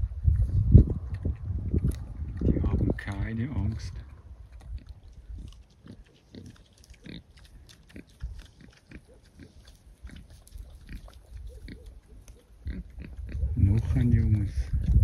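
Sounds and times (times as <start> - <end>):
boar rooting noises: 0.0 - 15.0.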